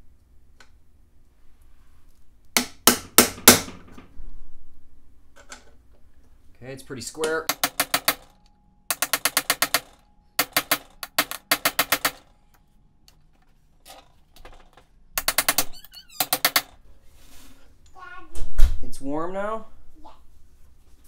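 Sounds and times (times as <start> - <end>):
hammer tapping metal driver: 7.2 - 12.3, 15.2 - 16.7.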